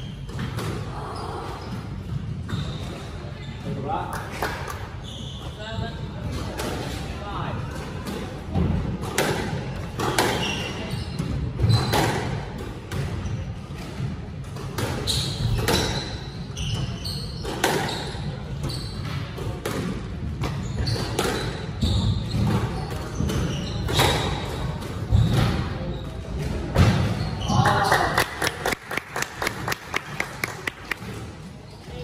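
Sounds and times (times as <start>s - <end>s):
squash ball hitting rackets and walls: 0.0s - 1.0s, 6.2s - 27.7s
shoe squeaks on wooden floor: 0.0s - 4.0s, 4.9s - 6.4s, 10.1s - 12.2s, 15.0s - 19.4s, 20.5s - 27.6s.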